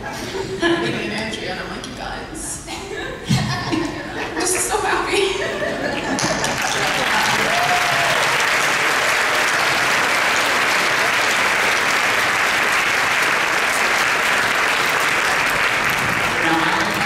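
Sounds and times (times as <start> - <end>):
audience applauding: 5.8 - 17.0.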